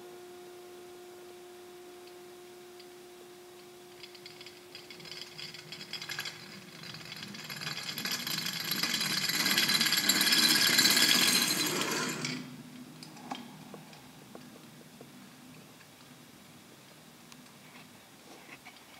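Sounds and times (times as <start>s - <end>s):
spinning top rattling on table: 3.9s - 12.5s.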